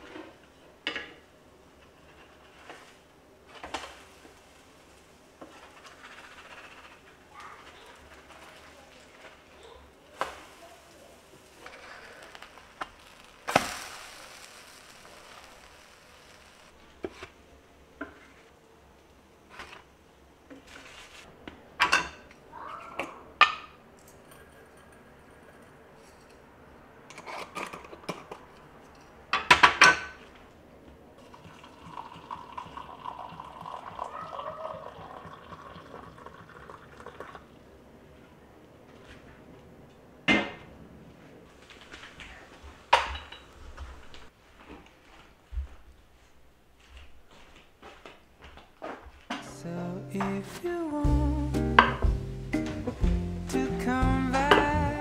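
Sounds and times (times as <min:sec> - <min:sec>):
water pouring into a glass: 0:31.2 - 0:37.5.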